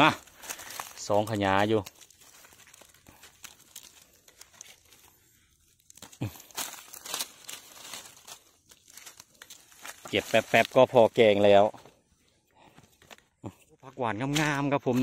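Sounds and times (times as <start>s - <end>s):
dry leaves and twigs rustling: 0.0s - 15.0s
twigs snapping: 0.2s - 10.9s.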